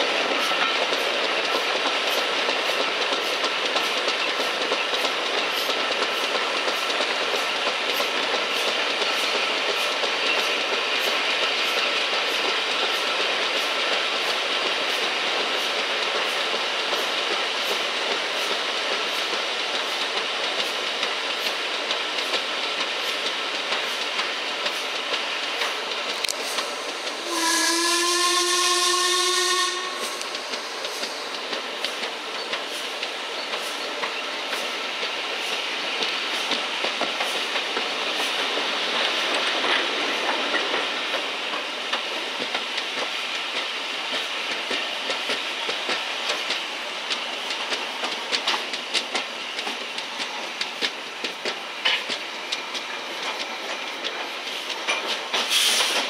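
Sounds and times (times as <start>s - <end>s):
wheels clicking over rail joints: 0.2s - 27.2s, 30.2s - 56.0s
steam locomotive whistle: 27.2s - 30.5s.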